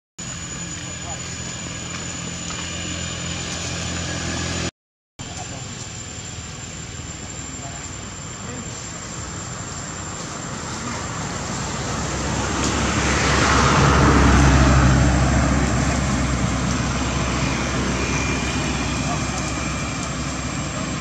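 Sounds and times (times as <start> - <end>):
vehicle driving past: 10.5 - 21.0.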